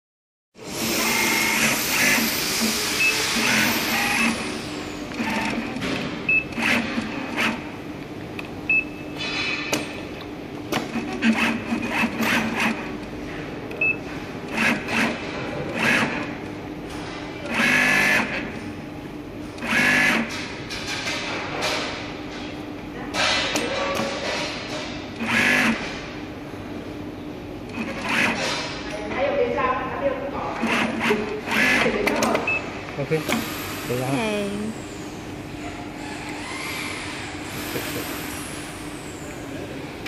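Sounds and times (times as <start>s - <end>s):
sewing machine stitching: 0.7s - 4.4s, 5.1s - 7.7s, 10.8s - 12.9s, 14.5s - 16.3s, 17.4s - 18.4s, 19.6s - 20.3s, 25.2s - 25.8s, 27.7s - 28.7s, 30.6s - 32.3s.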